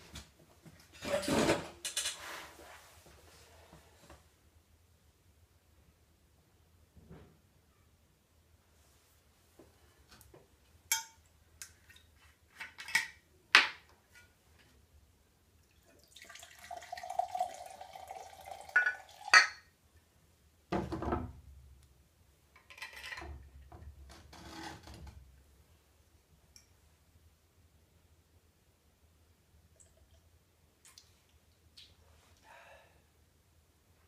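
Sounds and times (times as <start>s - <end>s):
liquid pouring into metal mug: 15.8s - 19.5s
glass clinks: 18.8s - 19.7s.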